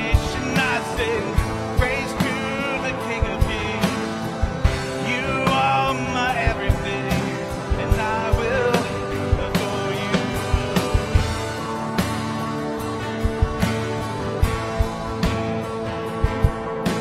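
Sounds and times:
person singing: 0:00.0 - 0:11.5
drum kit beat: 0:00.0 - 0:17.0
electric guitar: 0:00.0 - 0:17.0.

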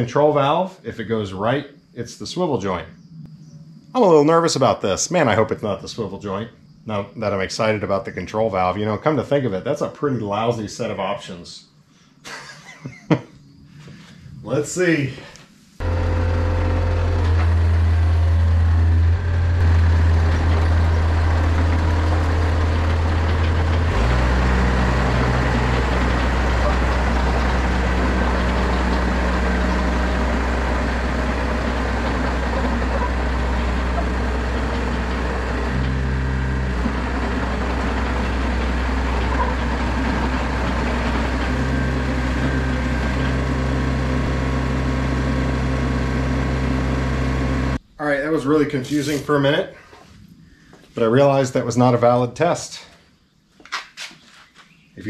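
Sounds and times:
excavator diesel engine running: 0:15.8 - 0:47.8.

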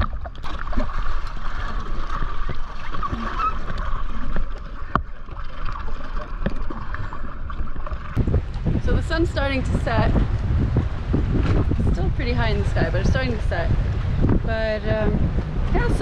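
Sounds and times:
swim fins kicking water: 0:00.0 - 0:08.8
water splashing against boat: 0:00.0 - 0:16.0.

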